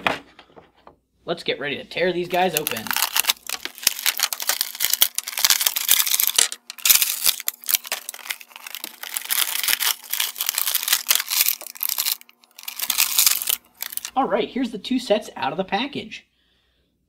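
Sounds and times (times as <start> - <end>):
plastic packaging tearing and crinkling: 2.3 - 14.1.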